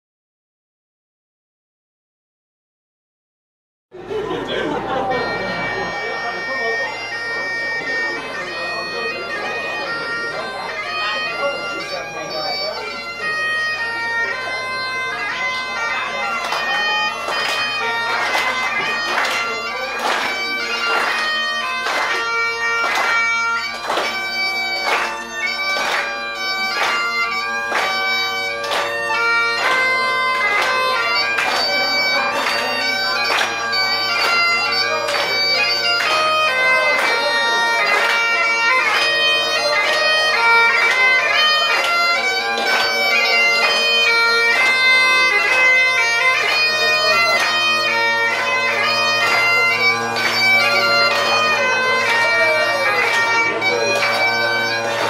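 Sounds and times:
bagpipe playing a tune: 0:04.5 - 0:55.0.

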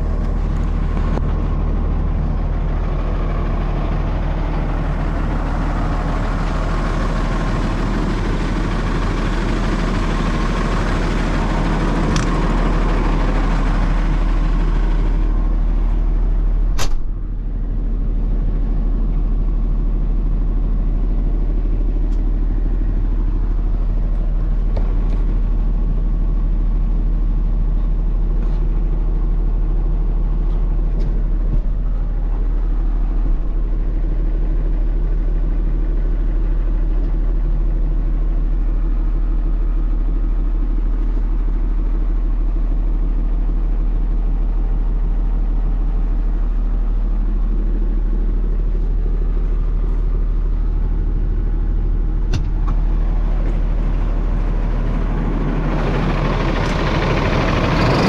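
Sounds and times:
truck diesel engine idling: 0:00.0 - 0:58.0.

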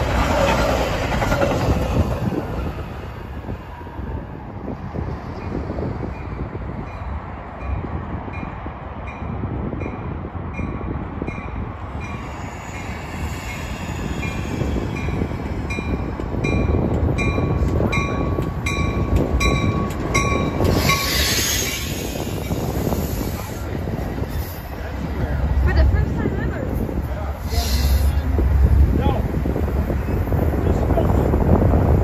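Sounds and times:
train wheels rumbling on rail: 0:00.0 - 0:32.0
train bell ringing: 0:08.4 - 0:21.2.

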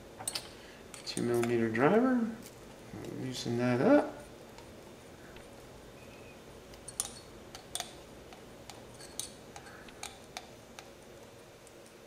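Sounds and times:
light metal clicks of tools: 0:00.2 - 0:01.6.

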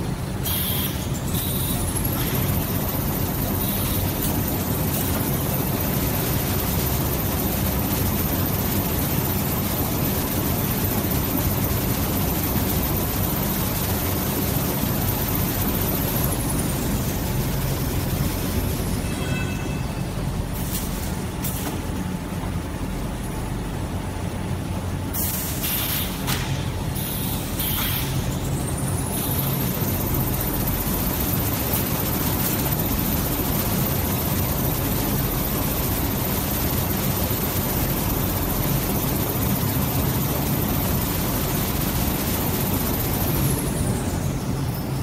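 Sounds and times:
factory machinery running: 0:00.0 - 0:45.0
thin high machine whine: 0:00.0 - 0:45.0.

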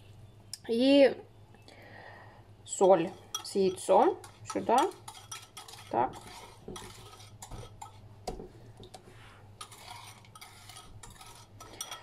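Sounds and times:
whisk scraping ceramic bowl: 0:02.8 - 0:08.1, 0:08.9 - 0:12.0.

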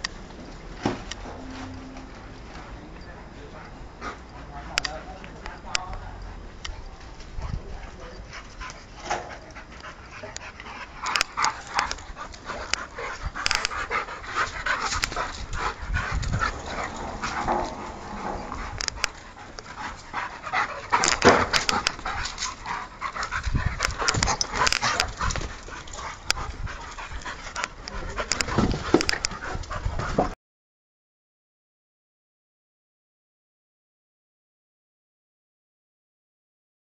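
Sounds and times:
small dogs playing: 0:01.4 - 0:30.2.

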